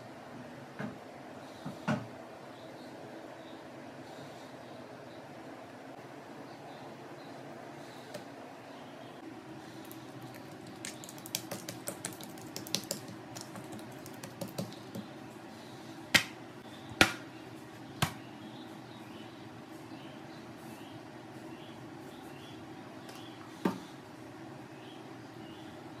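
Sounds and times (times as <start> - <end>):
dough slaps: 10.3 - 15.1, 16.1 - 17.3, 18.0 - 18.2
sticky taps and pats on dough: 10.6 - 15.1, 16.1 - 17.2, 18.0 - 18.2.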